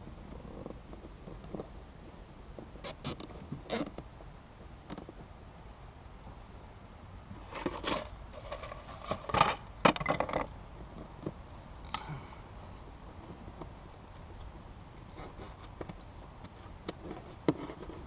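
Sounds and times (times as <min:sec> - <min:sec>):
rustling and scraping of wiring: 0:07.3 - 0:10.4, 0:14.2 - 0:18.0.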